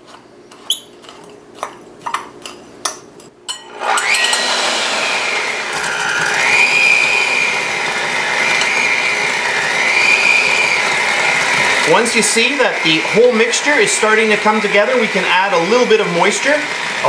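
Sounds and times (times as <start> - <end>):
electric hand mixer whine: 3.7 - 17.0.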